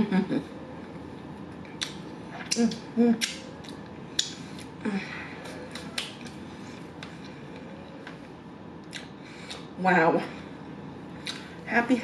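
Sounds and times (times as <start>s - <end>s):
lip smacks while chewing: 1.7s - 4.8s, 5.4s - 6.4s, 8.8s - 9.7s, 11.2s - 11.5s.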